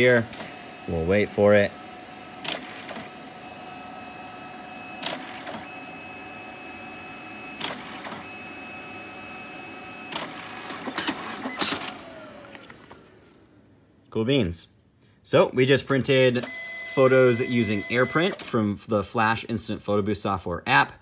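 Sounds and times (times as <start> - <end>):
printer motor whine: 0.0 - 13.9, 16.1 - 18.6
printer clacks: 2.4 - 3.2, 5.0 - 5.7, 7.6 - 8.3, 10.1 - 12.0.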